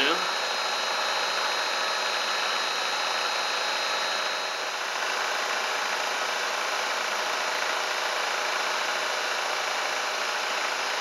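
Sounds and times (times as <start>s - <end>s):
milling machine cutting metal: 0.0s - 6.5s.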